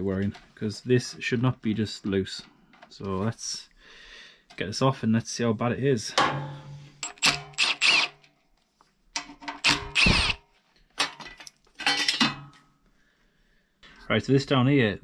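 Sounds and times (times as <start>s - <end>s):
metal scrapes and clinks: 11.0s - 12.6s.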